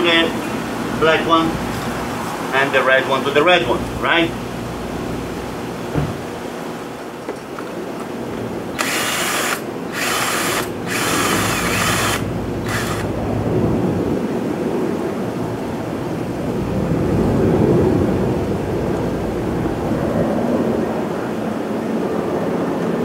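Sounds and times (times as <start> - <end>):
cordless drill spinning: 8.7 - 13.2
low rumble: 10.9 - 21.0.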